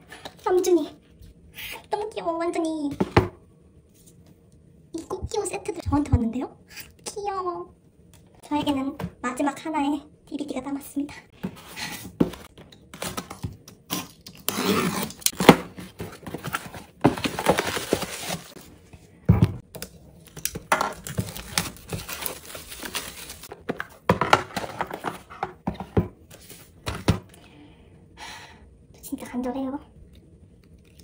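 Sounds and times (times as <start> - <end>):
plastic wrap crinkling: 15.0 - 18.6, 20.2 - 23.5.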